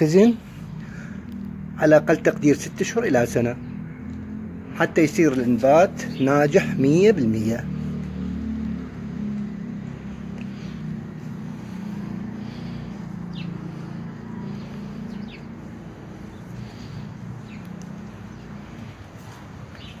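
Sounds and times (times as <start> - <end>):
high falling bird chirps: 9.0 - 20.0.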